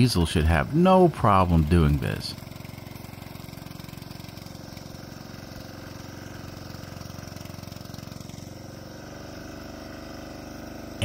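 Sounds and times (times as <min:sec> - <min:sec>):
diesel engine running under load: 0:00.0 - 0:11.0.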